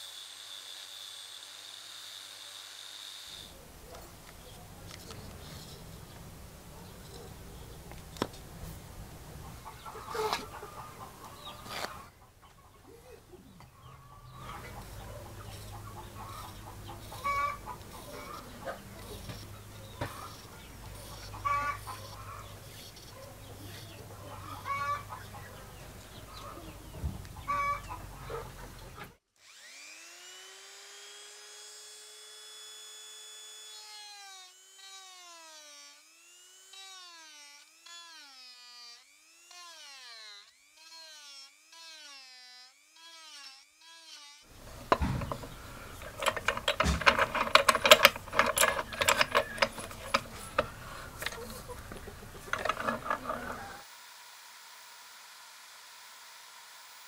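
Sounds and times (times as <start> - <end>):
drill press cutting wood: 0.0 - 3.5, 14.4 - 23.2, 29.4 - 57.0
rotary tool sanding wood: 0.0 - 7.7, 8.6 - 12.2, 14.2 - 57.0
hen clucking: 9.3 - 29.2, 44.6 - 53.8.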